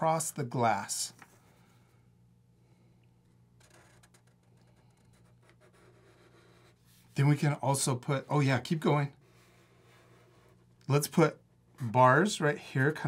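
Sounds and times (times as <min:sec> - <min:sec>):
low steady hum: 0:00.0 - 0:13.0
markers scratching on paper: 0:04.9 - 0:07.1.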